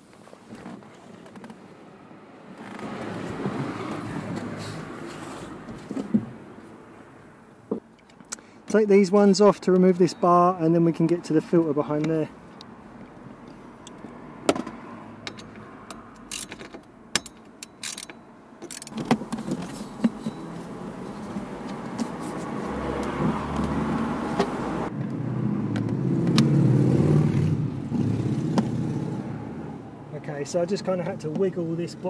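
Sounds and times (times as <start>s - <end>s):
vehicle rumble: 0.0s - 32.0s
hand tools clicking and clinking: 15.2s - 20.6s.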